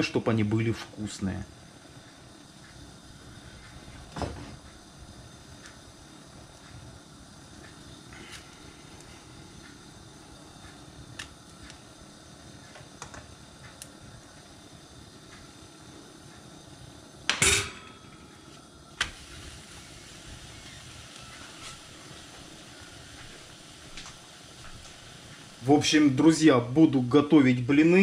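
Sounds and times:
faint steady hiss: 0.0 - 28.0.

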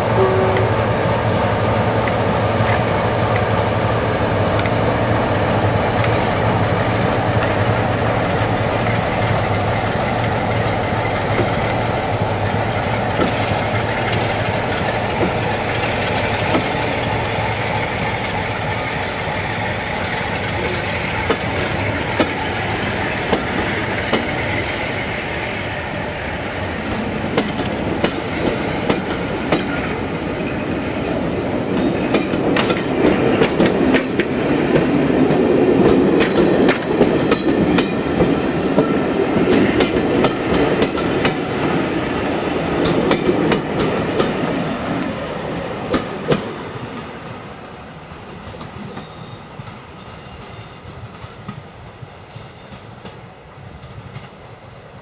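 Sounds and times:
diesel locomotive engine drone: 0.0 - 55.0
wheels clicking over rail joints: 42.6 - 45.1.

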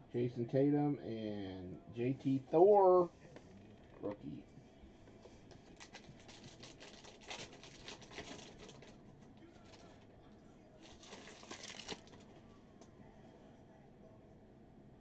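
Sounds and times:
foil wrapper tearing and crinkling: 5.8 - 9.0, 10.8 - 12.2.

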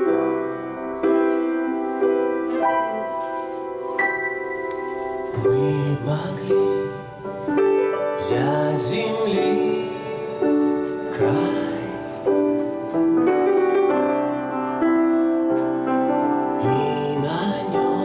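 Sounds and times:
piano chords: 0.0 - 18.0
man singing: 5.3 - 7.4, 8.1 - 12.8, 16.5 - 18.0.

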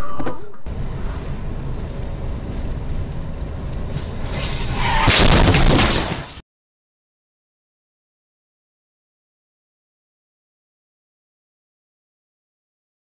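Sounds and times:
car road and wind rumble: 0.7 - 5.8
car crash impacts and scraping: 3.9 - 6.4.

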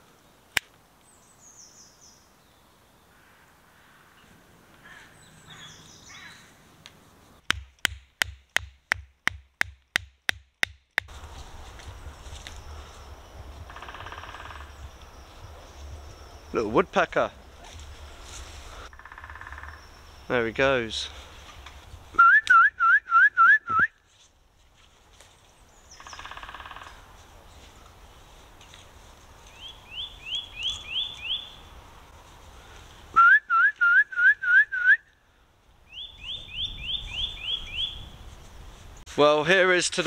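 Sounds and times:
wooden peg hammered into ground: 7.4 - 11.2
rising whistled notes: 22.2 - 23.9.

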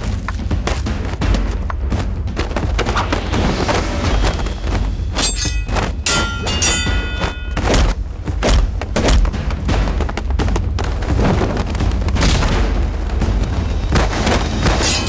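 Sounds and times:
dramatic background music: 0.0 - 15.0
fight hits and thuds: 5.6 - 12.9.

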